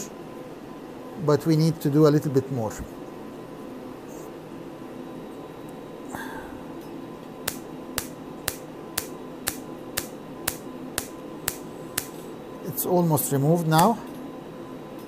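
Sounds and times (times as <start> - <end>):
faint steady hum: 0.0 - 15.0
laser firing sharp snaps: 7.5 - 12.2.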